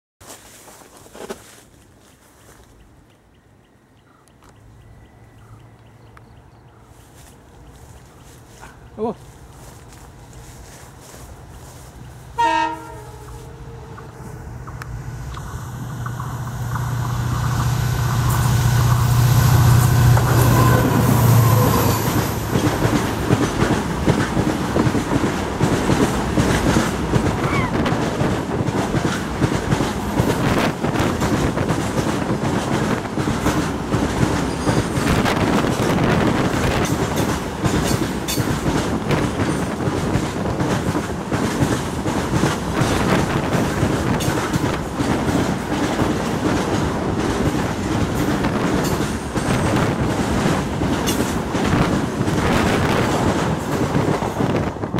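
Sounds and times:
diesel locomotive engine drone: 2.0 - 54.9
train wheels clacking over rail joints: 15.4 - 54.9.

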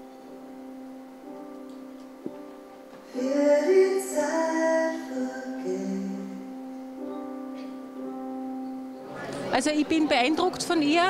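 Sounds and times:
keyboard accompaniment: 0.0 - 11.0
woman singing: 3.1 - 6.5.

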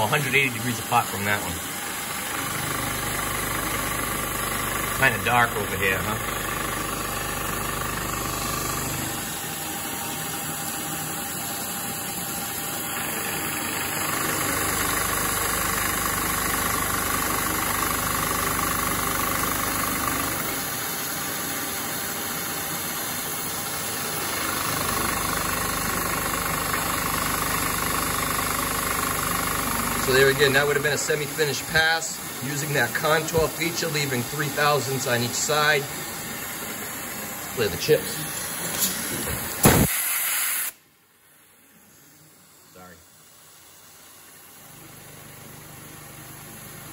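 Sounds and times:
milling machine cutting steel: 29.5 - 40.3.

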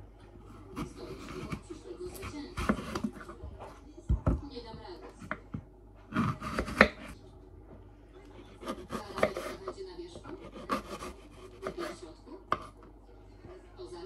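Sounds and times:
knife slicing an apple: 0.4 - 3.4, 5.1 - 7.2, 8.4 - 12.8.

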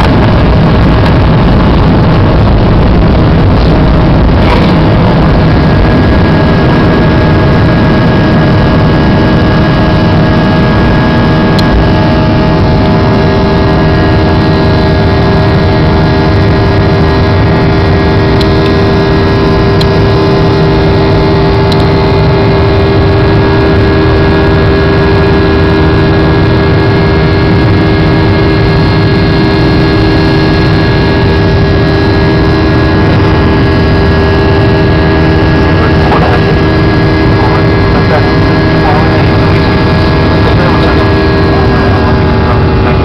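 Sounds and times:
aircraft engines rushing: 0.0 - 43.0
humming tones: 0.0 - 43.0.

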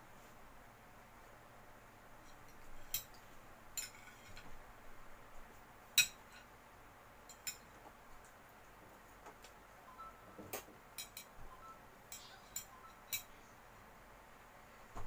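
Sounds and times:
fork clinking and scraping a plate: 2.2 - 3.2, 3.8 - 4.5, 6.0 - 6.5, 7.2 - 7.7, 11.0 - 11.3, 12.1 - 13.3.

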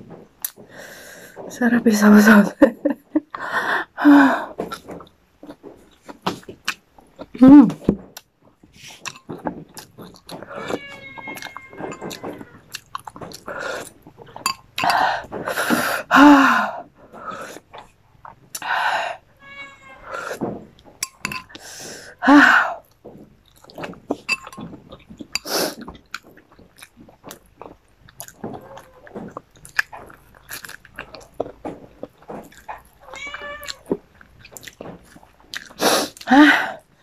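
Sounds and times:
person chewing and lip smacking: 4.7 - 7.4, 8.2 - 15.8, 22.8 - 36.3.

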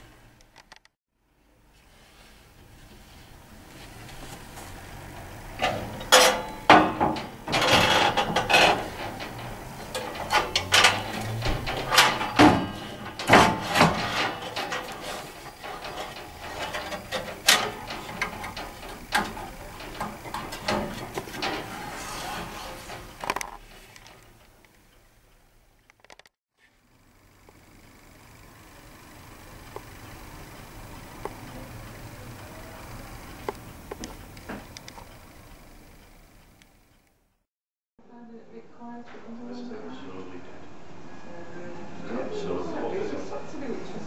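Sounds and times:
metal scrape: 1.8 - 24.6
glass panel clacks and knocks: 5.6 - 23.4.

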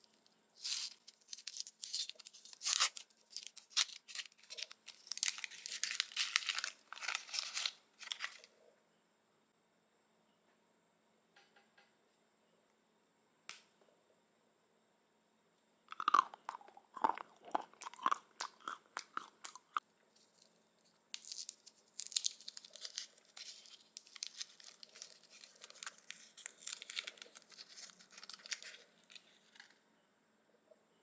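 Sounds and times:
chocolate crunching: 0.0 - 8.5, 15.9 - 29.7
foil wrapper crinkling: 0.0 - 8.5, 20.2 - 29.7.

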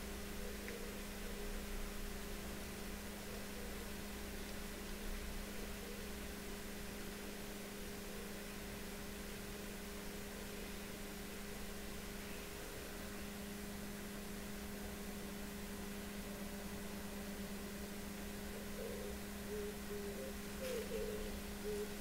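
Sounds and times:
constant hiss: 0.0 - 22.0
steady low hum: 0.0 - 22.0.

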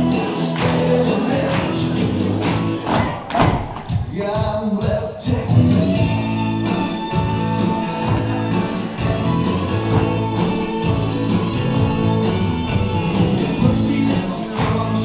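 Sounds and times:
country music with guitars: 0.0 - 3.1, 5.5 - 15.0.

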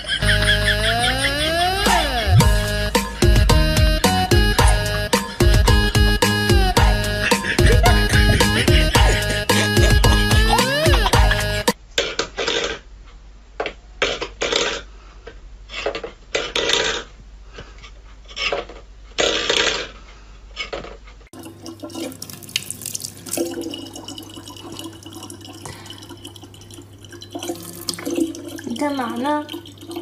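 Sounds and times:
faucet running into plastic bottle: 21.4 - 30.0.

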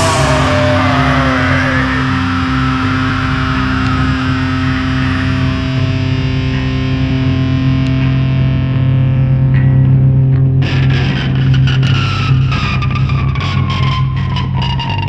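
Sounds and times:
high tone sliding down: 0.0 - 6.6
sharp hits: 0.0 - 6.7
distorted electric guitar chord: 0.0 - 15.0.

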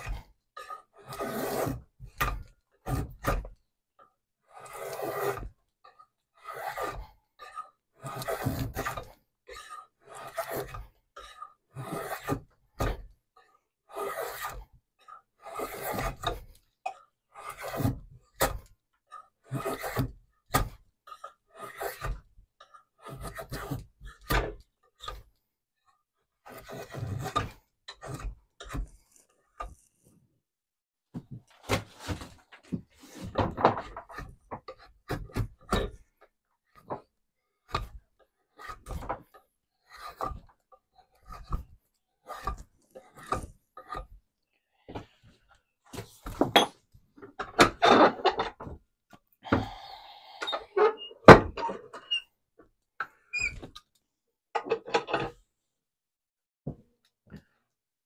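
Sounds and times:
hand tool rasping on wood: 0.0 - 3.5, 4.4 - 24.3, 26.4 - 30.1, 37.7 - 44.2.

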